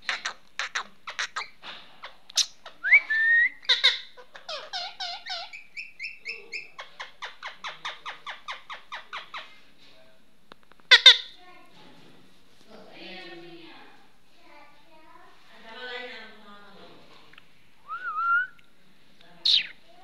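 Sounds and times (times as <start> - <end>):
parakeet chattering: 0.0 - 3.0, 3.6 - 9.5, 10.9 - 11.4, 19.4 - 19.9.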